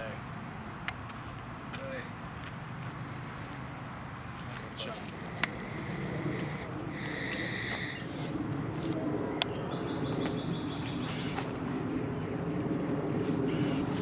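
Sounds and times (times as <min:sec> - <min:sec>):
birds calling: 0:02.8 - 0:12.4
low background rumble: 0:05.1 - 0:10.8.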